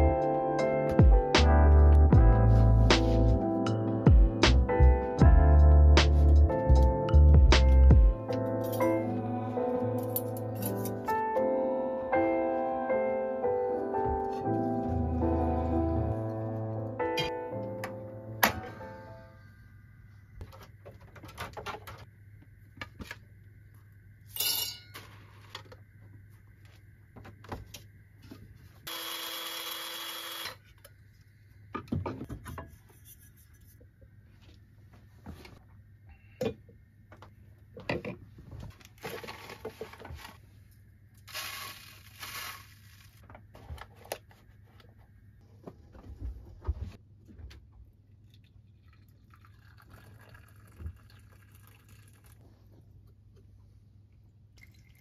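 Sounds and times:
coffee grinder whine: 0:28.9 - 0:30.6, 0:41.3 - 0:43.2
water pouring from kettle: 0:48.3 - 0:52.4, 0:54.6 - 0:55.0.

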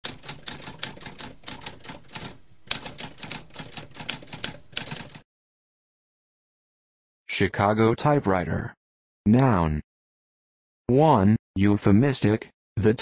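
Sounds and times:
typewriter typing: 0:00.0 - 0:05.2.

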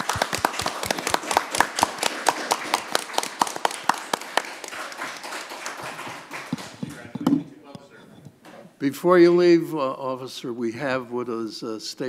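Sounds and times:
small group applauding: 0:00.0 - 0:07.4.

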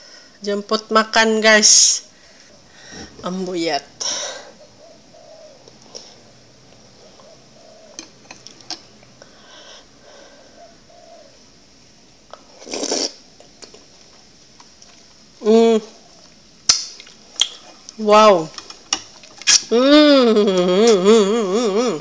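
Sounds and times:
loud slurp: 0:12.6 - 0:13.2.

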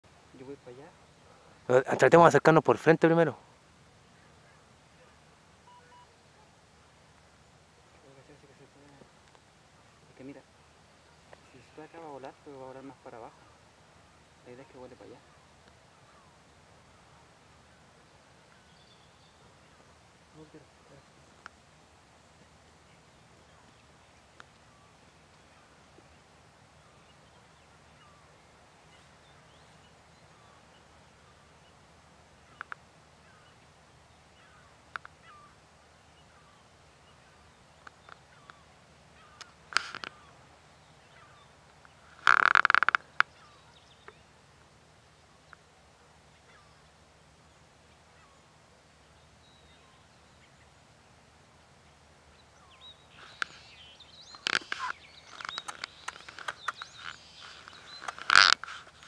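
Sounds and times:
small birds chirping: 0:00.0 - 0:59.0
sharp clicks: 0:54.3 - 0:59.0.

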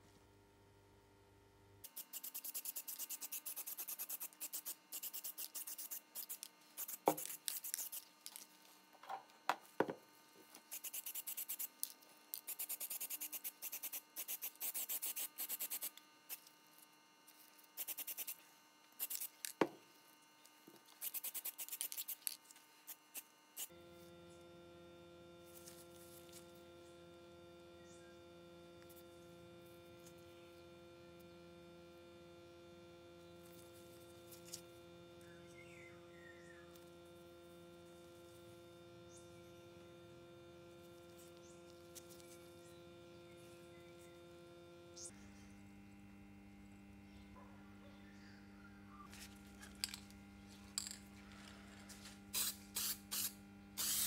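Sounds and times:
steady electrical hum: 0:00.0 - 0:54.0
aerosol can spraying: 0:01.8 - 0:08.1, 0:10.7 - 0:16.4, 0:17.8 - 0:18.4, 0:19.0 - 0:19.5, 0:21.0 - 0:22.4, 0:52.3 - 0:54.0.

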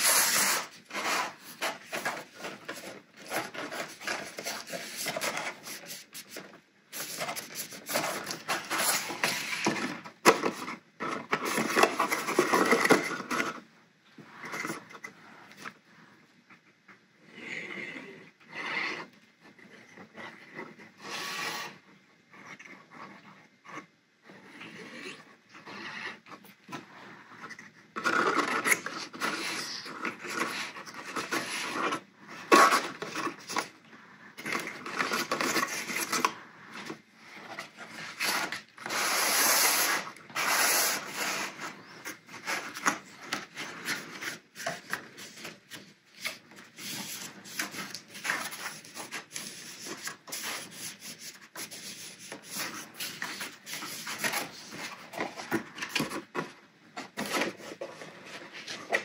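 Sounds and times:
stiff paper scraping and rustling: 0:00.0 - 0:13.6, 0:34.4 - 0:59.0.

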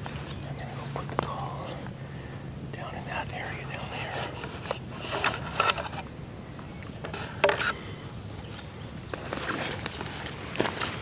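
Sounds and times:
clothing and gear rustling: 0:09.1 - 0:11.0.

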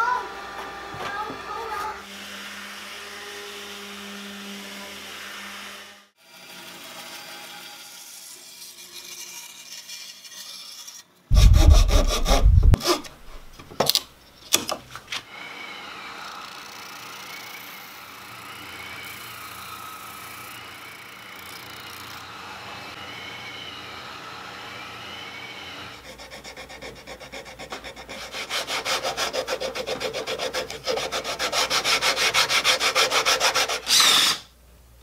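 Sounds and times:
saw cutting wood: 0:01.5 - 0:13.6, 0:15.3 - 0:34.5
orbital sander on wood: 0:11.3 - 0:13.6
spindle sander running: 0:11.3 - 0:13.6.

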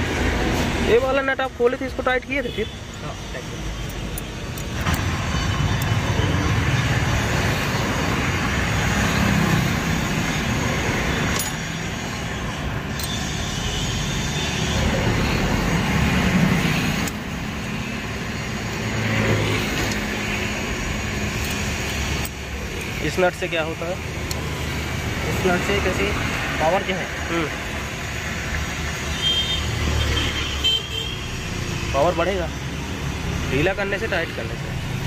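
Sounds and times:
motor vehicle engine: 0:03.0 - 0:29.0.

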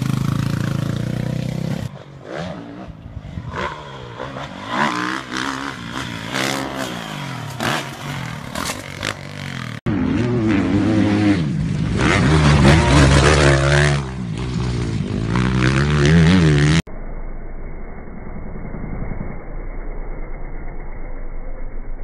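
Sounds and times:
dirt bike engine revving: 0:00.0 - 0:16.9
dirt bike engine at low revs: 0:00.0 - 0:22.0.

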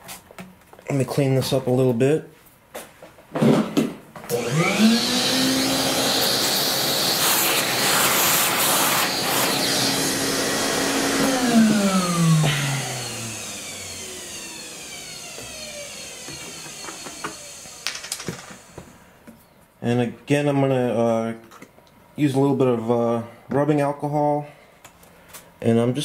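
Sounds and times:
small vacuum cleaner motor: 0:04.2 - 0:19.0.

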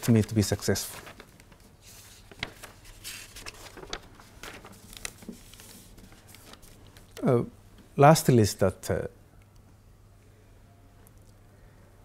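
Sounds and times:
paper rustling: 0:00.0 - 0:07.2.

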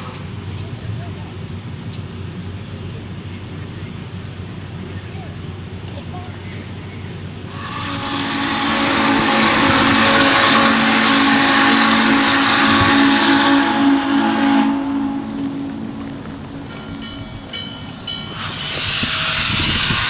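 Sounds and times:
hiss of steam: 0:00.0 - 0:20.0
steam locomotive whistle: 0:07.5 - 0:20.0.

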